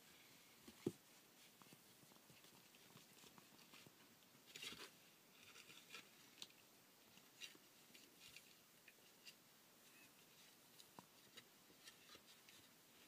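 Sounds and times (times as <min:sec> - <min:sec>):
puppy paws scrabbling: 0:00.6 - 0:04.8.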